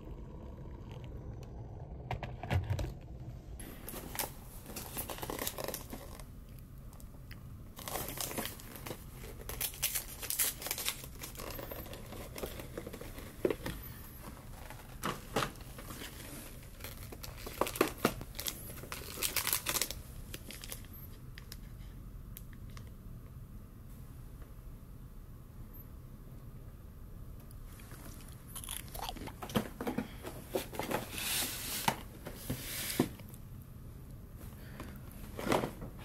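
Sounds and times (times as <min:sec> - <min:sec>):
packaging crinkling and rustling: 0:03.7 - 0:07.1, 0:07.7 - 0:21.7.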